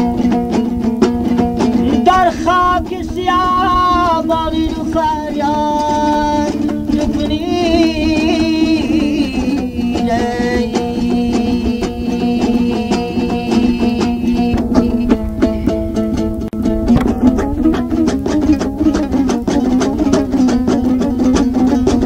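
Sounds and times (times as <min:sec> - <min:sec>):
lute strummed quickly: 0:00.0 - 0:22.0
man singing long wavering notes: 0:01.7 - 0:16.3.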